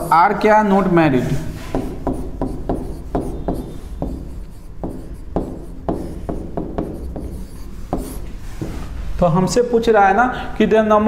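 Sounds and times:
pen tapping and scraping on whiteboard: 1.6s - 8.8s.

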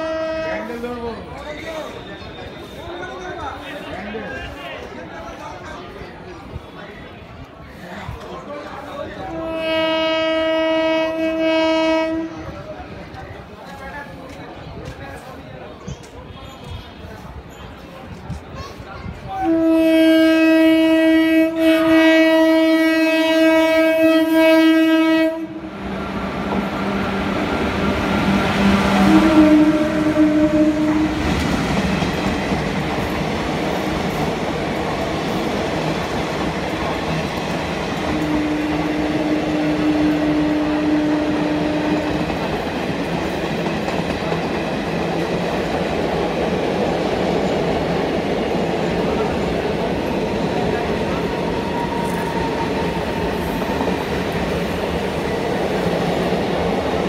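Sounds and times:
locomotive horn blast: 0.0s - 0.8s, 9.3s - 12.4s, 19.4s - 25.7s, 28.8s - 31.3s
train passing rumble: 0.0s - 57.0s.

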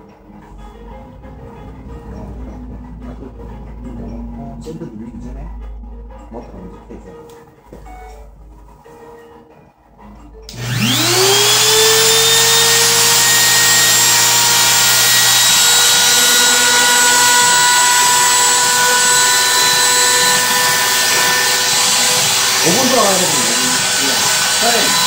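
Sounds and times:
router motor whine: 10.5s - 25.0s.

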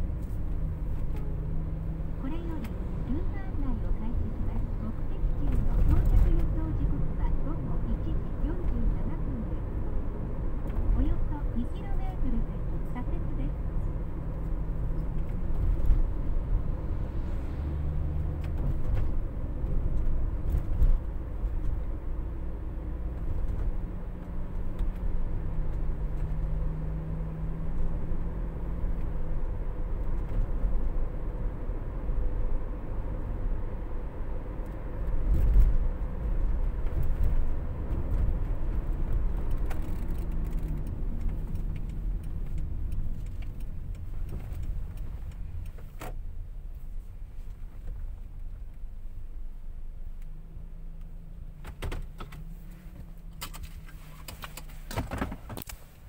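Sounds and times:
low rumble: 0.0s - 22.6s
engine and tyre noise in car cabin: 0.0s - 56.0s.

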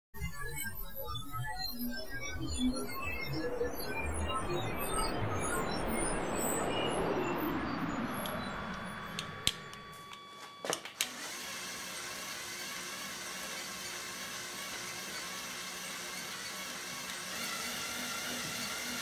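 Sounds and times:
sharp clicks: 8.2s - 11.2s
toy electric motor whirring: 8.2s - 19.0s.

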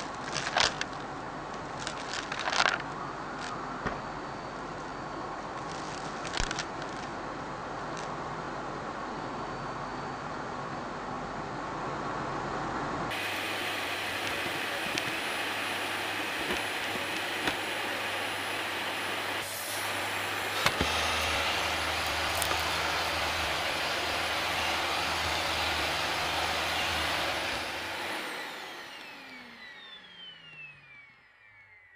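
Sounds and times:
debris clicking in vacuum: 0.0s - 3.6s, 19.5s - 23.5s
stick vacuum running: 13.1s - 31.9s.

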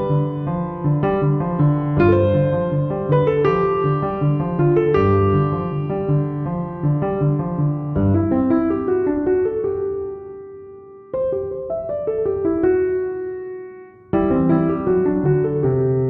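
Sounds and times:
piano chords: 0.0s - 16.0s.

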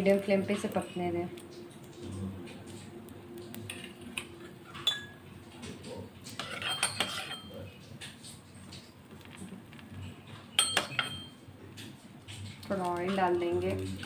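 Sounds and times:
metal kitchenware clinking: 3.6s - 7.7s, 10.3s - 11.4s.

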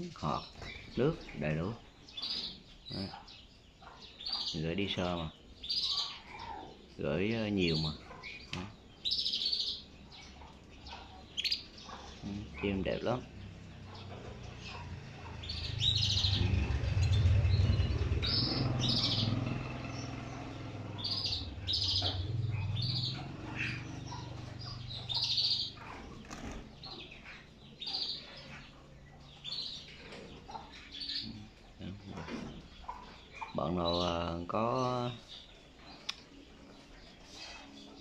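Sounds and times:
canaries chirping: 0.0s - 38.0s
wings fluttering: 23.1s - 27.5s.

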